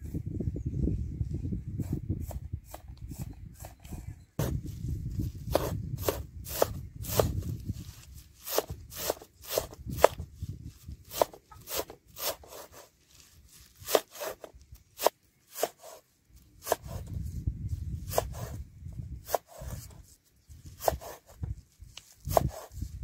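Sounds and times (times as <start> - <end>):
cleaver chopping on wooden board: 5.5 - 7.4, 8.5 - 10.2, 11.1 - 12.6, 13.8 - 16.0, 16.6 - 17.0, 22.3 - 22.7.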